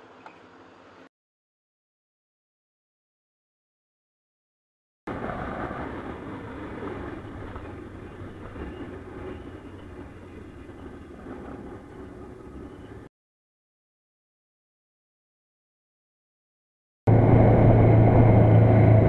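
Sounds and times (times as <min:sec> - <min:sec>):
road noise: 0:05.1 - 0:13.1, 0:17.1 - 0:19.0
wind noise: 0:05.1 - 0:13.1.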